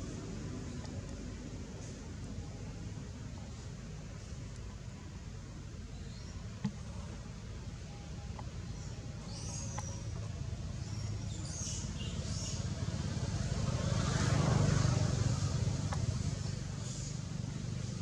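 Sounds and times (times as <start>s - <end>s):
vehicle passing rumble: 10.1s - 18.0s.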